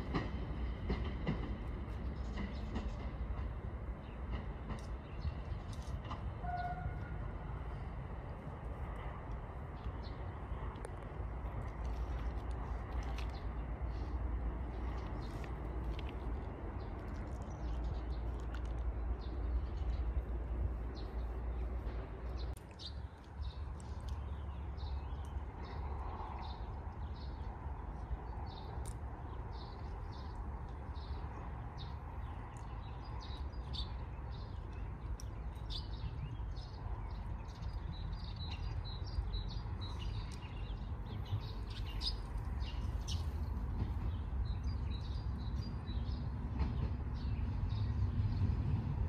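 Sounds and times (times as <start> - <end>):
steady low rumble: 0.0 - 49.0
birds chirping: 9.7 - 48.5.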